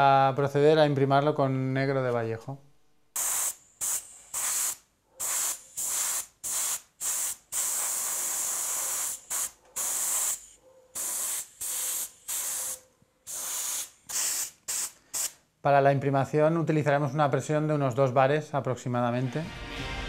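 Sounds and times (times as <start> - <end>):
airbrush spraying hiss: 3.2 - 15.4.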